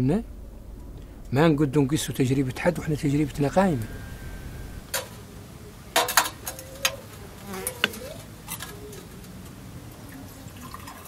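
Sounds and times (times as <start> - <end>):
faint wavering buzz: 0.0 - 6.0.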